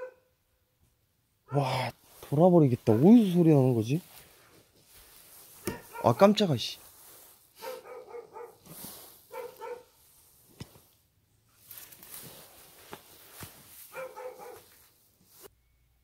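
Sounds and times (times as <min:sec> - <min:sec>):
dog barking: 0:00.0 - 0:00.3, 0:02.9 - 0:03.3, 0:05.6 - 0:06.4, 0:07.6 - 0:08.7, 0:09.3 - 0:10.0, 0:13.9 - 0:14.8.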